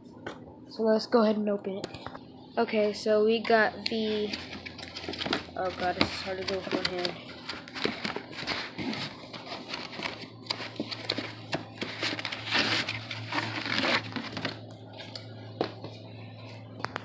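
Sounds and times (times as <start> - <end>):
packing crinkling and rustling: 3.9 - 15.9.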